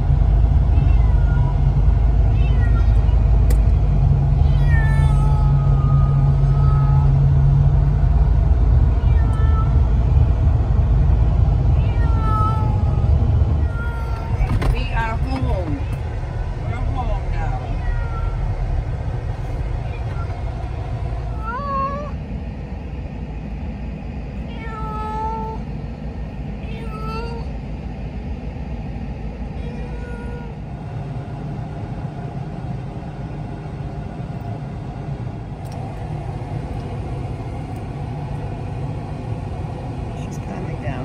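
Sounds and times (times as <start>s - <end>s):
low road rumble inside a car: 0.0s - 41.0s
cat meowing: 0.7s - 1.6s, 2.3s - 3.2s, 4.4s - 7.2s, 8.9s - 9.8s, 11.8s - 14.6s, 17.5s - 18.6s, 19.8s - 20.6s, 24.5s - 25.6s, 26.6s - 27.5s, 29.6s - 30.6s.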